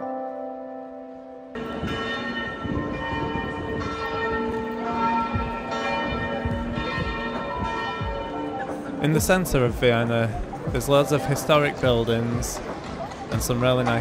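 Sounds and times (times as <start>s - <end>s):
background music: 0.0s - 14.0s
church bells ringing: 0.0s - 14.0s
crowd bustle: 1.6s - 14.0s.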